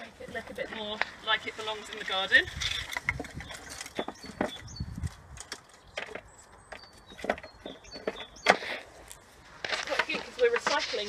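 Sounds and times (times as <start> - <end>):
sticks and twigs being piled: 0.0 - 11.0
wooden clicks and knocks: 2.6 - 8.8.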